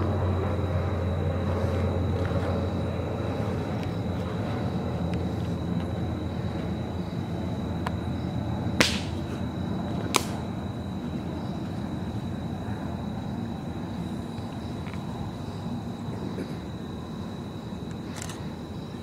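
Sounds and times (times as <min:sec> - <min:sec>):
sharp cracks: 0:08.8 - 0:09.3, 0:10.1 - 0:10.5.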